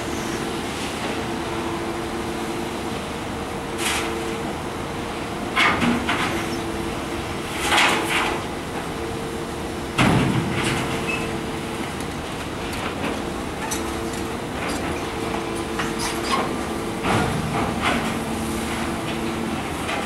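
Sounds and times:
excavator engine and hydraulics: 0.0s - 20.0s.

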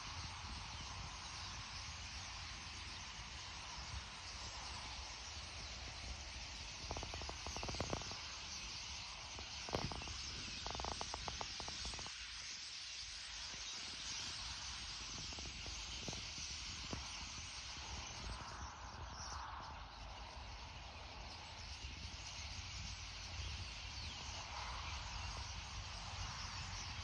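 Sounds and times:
starling flock chattering: 5.6s - 12.6s, 13.3s - 18.4s.

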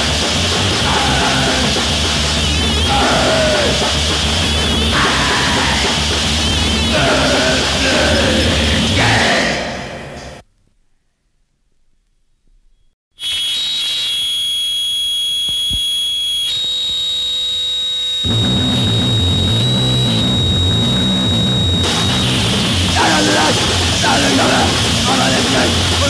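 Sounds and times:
guitar feedback whine: 0.0s - 8.9s, 13.2s - 26.0s
distorted bass and drums: 0.0s - 9.4s, 18.2s - 26.0s
shouted vocals: 0.7s - 1.9s, 2.8s - 4.1s, 4.7s - 10.3s.

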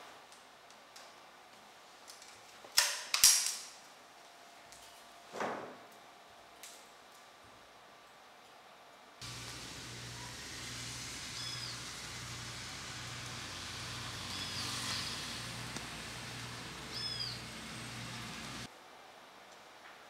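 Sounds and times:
steady hiss: 9.2s - 19.1s
bird chirping: 11.1s - 18.7s.

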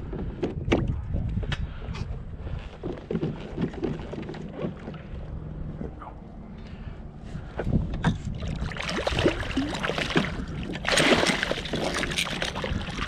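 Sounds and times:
fish splashing in water: 8.4s - 13.0s.

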